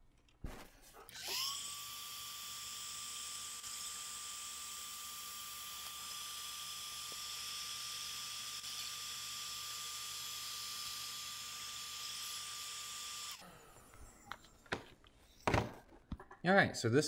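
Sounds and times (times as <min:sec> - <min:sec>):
heat gun fan whine: 0:01.2 - 0:13.4.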